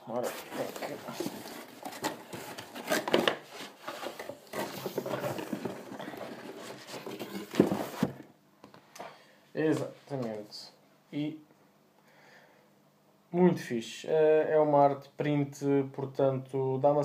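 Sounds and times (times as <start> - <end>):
paper and cardboard rustling: 0.1 - 8.2.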